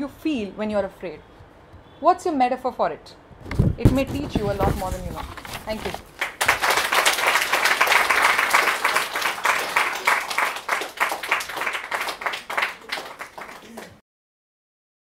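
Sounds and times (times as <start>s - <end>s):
audience applauding: 6.0s - 14.0s.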